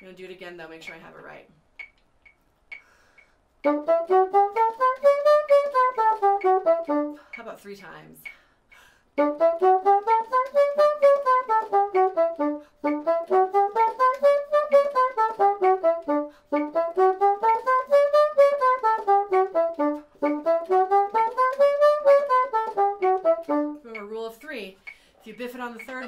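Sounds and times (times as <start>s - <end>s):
bassoon playing scales: 3.6s - 7.4s, 9.2s - 24.2s.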